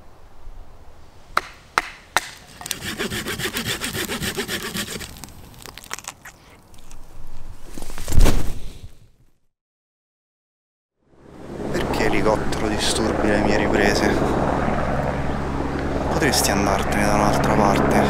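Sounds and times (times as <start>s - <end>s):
sharp wooden knocks: 1.4s - 5.0s
hand saw cutting wood: 1.4s - 5.3s.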